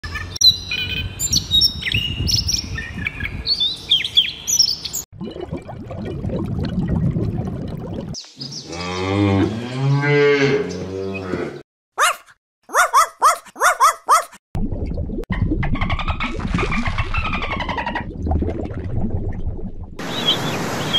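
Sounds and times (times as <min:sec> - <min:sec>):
songbird chirps and song: 0:00.3 - 0:05.1, 0:08.2 - 0:09.0
cow mooing: 0:08.7 - 0:11.6
short high falling yips: 0:12.0 - 0:14.4
splashing water: 0:16.1 - 0:20.9.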